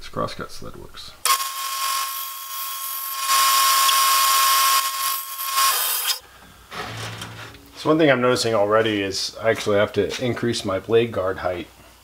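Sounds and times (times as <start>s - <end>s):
bandsaw cutting aluminum: 1.2s - 6.2s
bandsaw whine: 1.3s - 6.2s.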